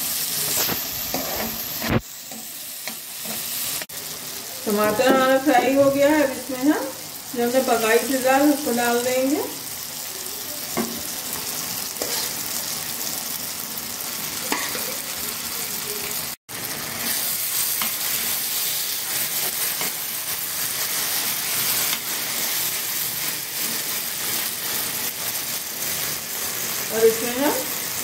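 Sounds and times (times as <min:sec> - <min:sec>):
food sizzling in a pan: 0:00.0 - 0:28.0
spoon scraping a pan: 0:00.4 - 0:03.9, 0:12.0 - 0:12.5.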